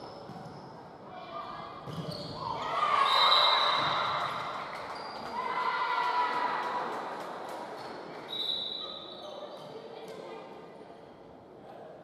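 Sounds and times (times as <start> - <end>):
shoe squeaks: 1.9 - 4.0.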